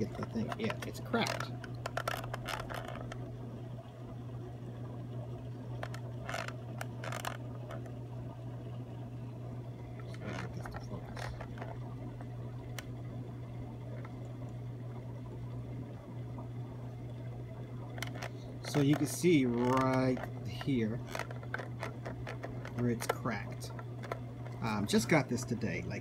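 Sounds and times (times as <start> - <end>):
fingers scraping plastic casing: 0.0 - 3.2, 5.8 - 7.8, 10.1 - 11.8, 17.9 - 24.6
steady low hum: 0.0 - 26.0.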